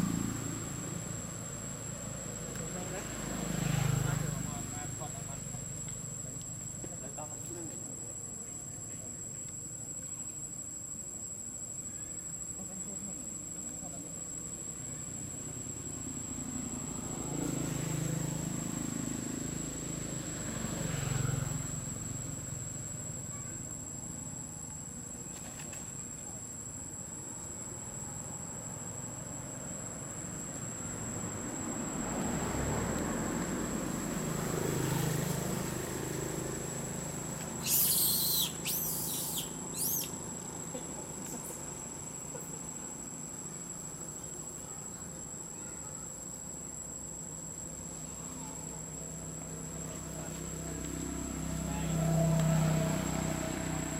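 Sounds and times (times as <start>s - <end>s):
insect drone: 0.0s - 53.9s
high wavering calls: 37.4s - 41.6s.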